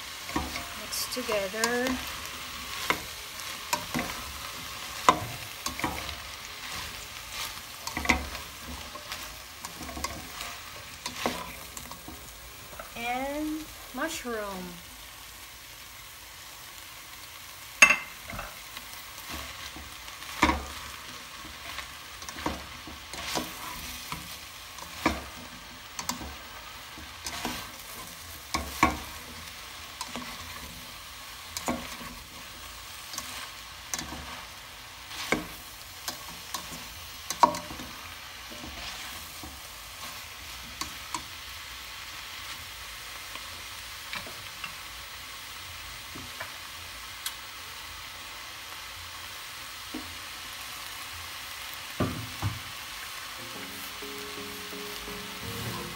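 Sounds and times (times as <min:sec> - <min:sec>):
spatula clacking and scraping pan: 0:00.0 - 0:13.0, 0:17.8 - 0:41.4
vegetables sizzling in a pan: 0:00.0 - 0:55.9.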